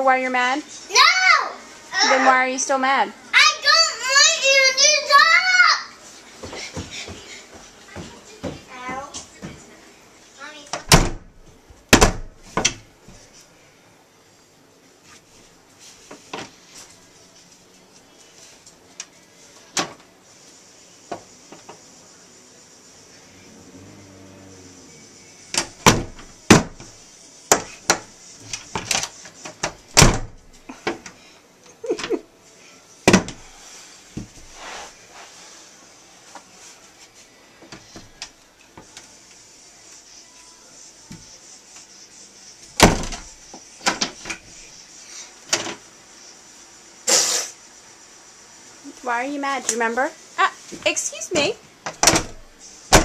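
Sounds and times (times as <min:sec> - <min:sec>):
child shouting: 0:00.9 - 0:02.3, 0:03.4 - 0:06.0
banging on wooden door: 0:11.9 - 0:12.8, 0:25.6 - 0:26.9, 0:29.9 - 0:30.4, 0:42.8 - 0:43.3.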